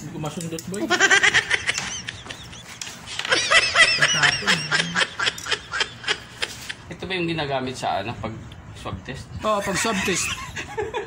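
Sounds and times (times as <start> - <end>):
men laughing: 0.6 - 7.0, 9.4 - 11.0.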